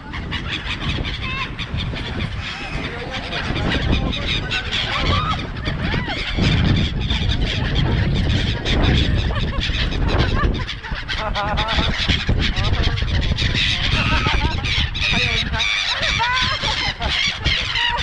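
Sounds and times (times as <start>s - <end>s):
gulls calling: 0.0s - 18.0s
wind on microphone: 0.0s - 18.0s.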